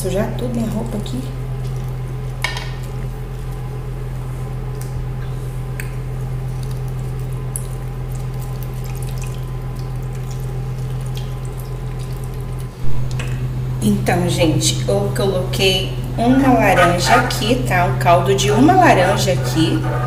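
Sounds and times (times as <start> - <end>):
steady low hum: 0.0 - 20.0
juice dripping into frying pan: 5.7 - 13.3.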